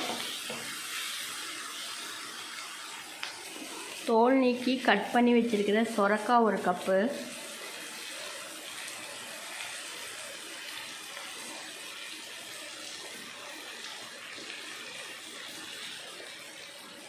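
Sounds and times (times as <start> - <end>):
vegetables sizzling in a pan: 0.0 - 17.0.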